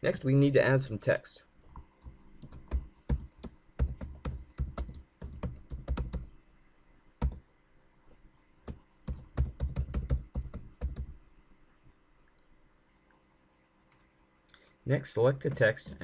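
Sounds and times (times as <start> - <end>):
computer keyboard typing: 2.0 - 6.3, 7.2 - 7.4, 8.7 - 11.1.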